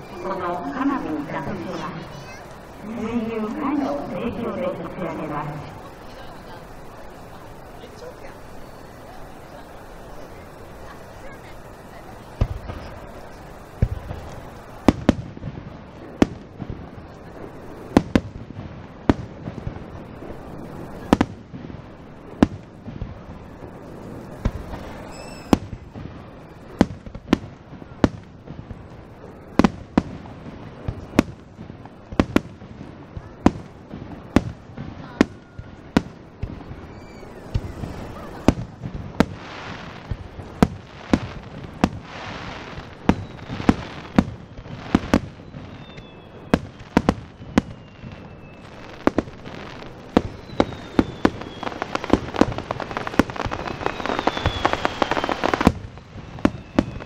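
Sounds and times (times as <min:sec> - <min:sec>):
firework crackle: 0:00.0 - 0:57.0
faint falling whistles: 0:24.7 - 0:25.6, 0:36.6 - 0:38.6, 0:43.0 - 0:57.0.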